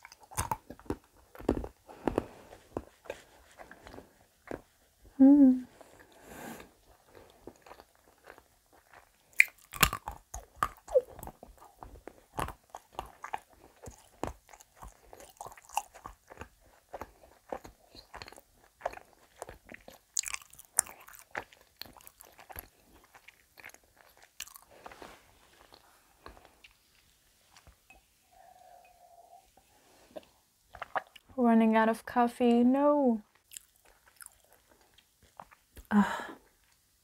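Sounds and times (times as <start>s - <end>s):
chewing chocolate crunches: 0.0s - 2.9s, 6.8s - 26.8s, 33.3s - 35.9s.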